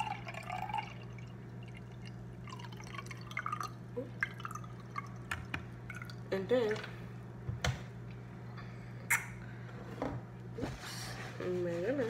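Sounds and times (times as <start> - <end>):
liquid pouring into a glass jar: 0.0 - 6.2.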